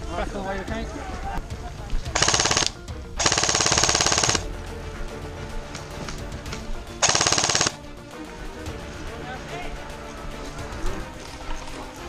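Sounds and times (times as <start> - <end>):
airsoft gun firing full-auto bursts: 2.2 - 4.5, 7.0 - 7.8.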